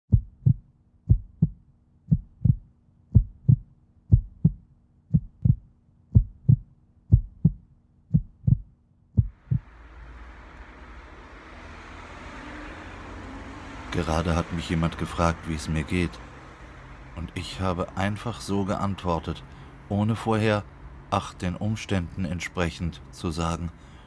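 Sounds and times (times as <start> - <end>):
heartbeat thumps: 0.1 - 9.7
outdoor background noise: 9.0 - 24.0.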